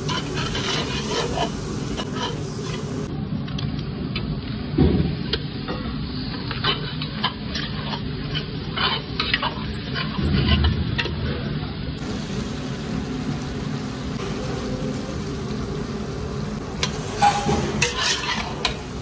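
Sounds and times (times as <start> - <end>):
spatula scraping metal pot: 0.0 - 2.8, 6.5 - 10.8, 17.2 - 18.8
food sizzling: 0.0 - 19.0.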